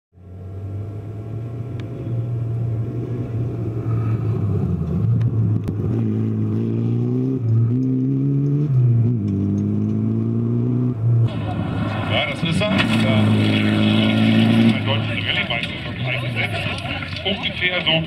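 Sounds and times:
rally car engine accelerating: 0.2s - 18.0s.

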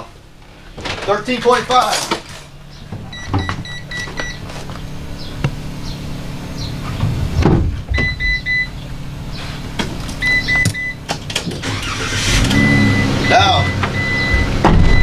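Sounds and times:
van engine humming: 0.0s - 15.0s
electronic chime beeping: 12.5s - 15.0s.

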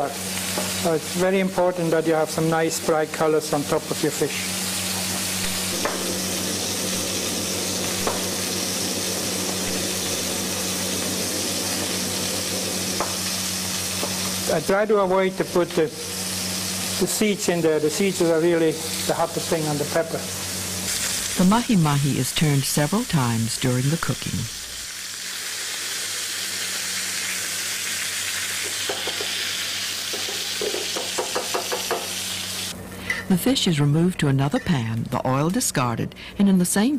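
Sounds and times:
fish sizzling in a pan: 0.0s - 32.8s
low hum: 4.6s - 14.5s.

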